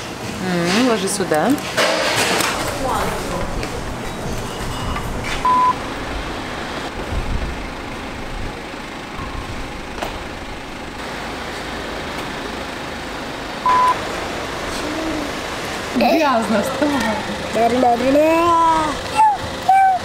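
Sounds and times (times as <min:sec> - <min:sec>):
short electronic beeps: 0:04.5 - 0:05.8, 0:13.6 - 0:14.0.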